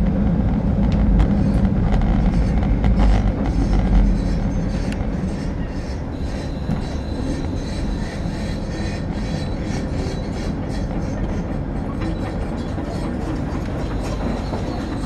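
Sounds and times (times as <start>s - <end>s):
railcar engine rumble: 0.0s - 15.0s
wheels on rails: 0.1s - 15.0s.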